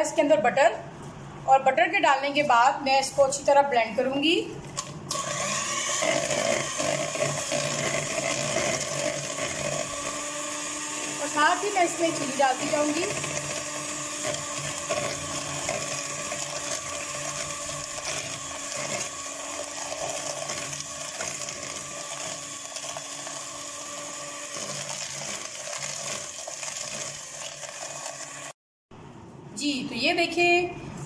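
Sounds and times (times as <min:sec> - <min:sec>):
electric hand mixer running: 0:05.1 - 0:28.6.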